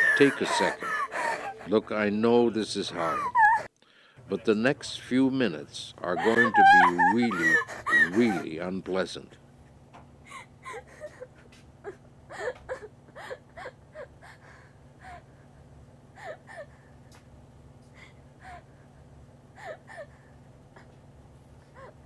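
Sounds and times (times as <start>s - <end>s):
person whimpering and sobbing: 0.0s - 2.0s, 2.9s - 3.7s, 6.1s - 8.5s, 10.3s - 14.4s, 19.6s - 20.2s
steady low hum: 0.0s - 22.0s.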